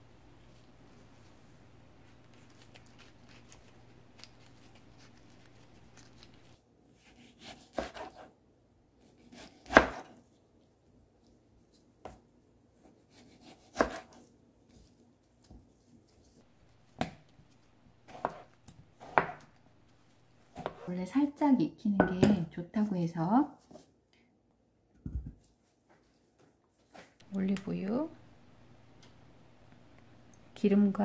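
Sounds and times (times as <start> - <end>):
knife chopping on cutting board: 7.2 - 8.3, 9.2 - 10.2, 13.1 - 14.2, 18.1 - 19.6, 20.5 - 20.9.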